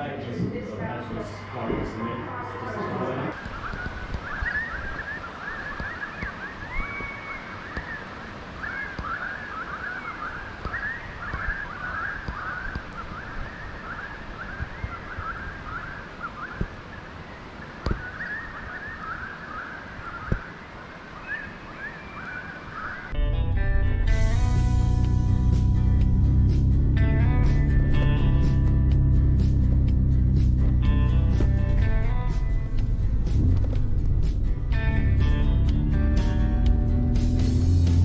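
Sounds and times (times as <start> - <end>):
birds chirping and calling: 3.3 - 23.2
guitar music: 23.2 - 38.0.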